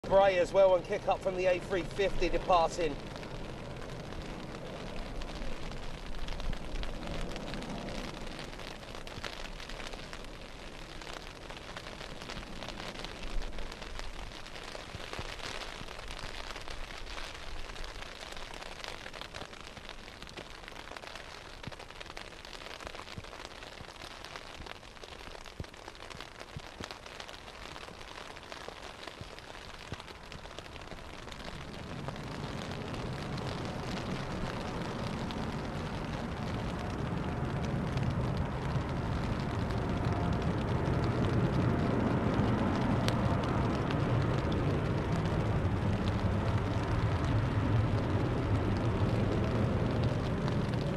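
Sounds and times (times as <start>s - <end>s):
jet engines rumbling: 0.0s - 14.5s, 30.8s - 50.9s
heavy rain hissing: 0.0s - 50.9s.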